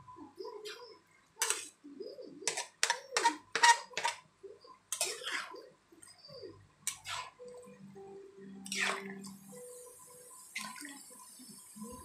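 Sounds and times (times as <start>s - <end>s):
metal spatula scraping a wok: 1.4s - 1.8s, 2.5s - 4.2s, 4.9s - 5.7s, 6.9s - 7.4s.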